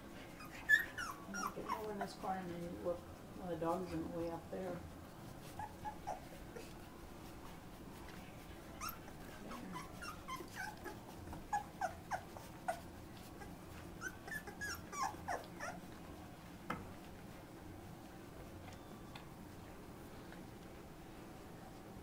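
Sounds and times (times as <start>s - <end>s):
puppies whimpering and squeaking: 0.2s - 2.4s, 5.4s - 7.0s, 8.6s - 16.0s
faint clicks of crawling puppies: 0.2s - 20.9s.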